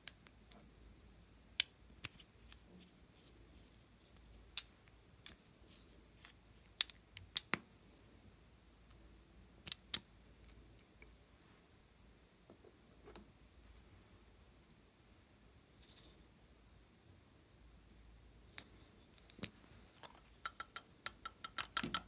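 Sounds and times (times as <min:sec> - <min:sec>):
small bottles and caps clicking: 0:18.6 - 0:22.0.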